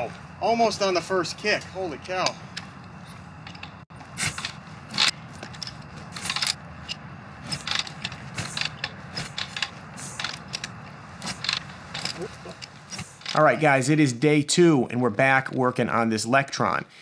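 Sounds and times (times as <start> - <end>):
kick-start pedal clanking: 2.2 - 13.4.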